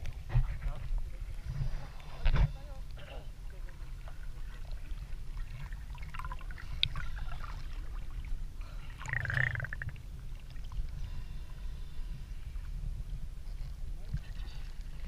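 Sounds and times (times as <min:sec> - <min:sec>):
small waves lapping and splashing: 0:00.0 - 0:15.0
gurgling splash: 0:03.6 - 0:10.7.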